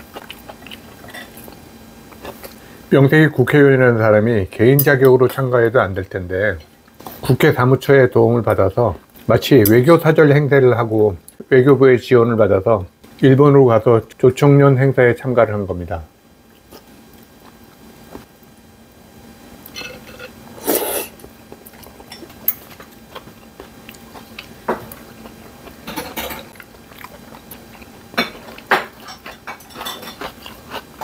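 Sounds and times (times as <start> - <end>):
person chewing: 0.0 - 2.6, 16.5 - 18.3, 20.6 - 31.0.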